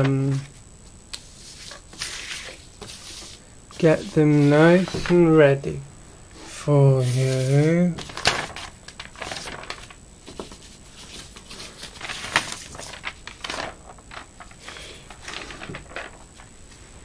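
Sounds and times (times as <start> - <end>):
paper rustling and crinkling: 1.2 - 5.3, 6.5 - 16.5.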